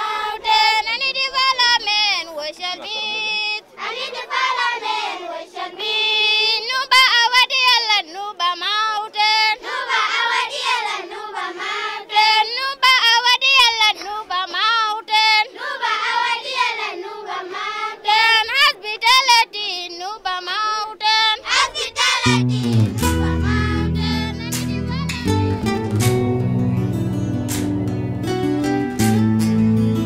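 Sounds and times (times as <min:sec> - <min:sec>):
children singing: 0:09.5 - 0:12.3, 0:15.4 - 0:18.8, 0:21.3 - 0:25.2.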